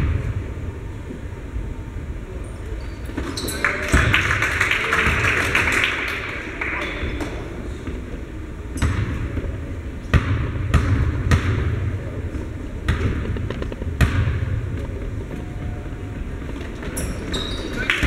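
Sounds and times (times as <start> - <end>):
basketball bouncing on hardwood floor: 10.1 - 11.7, 12.9 - 14.5.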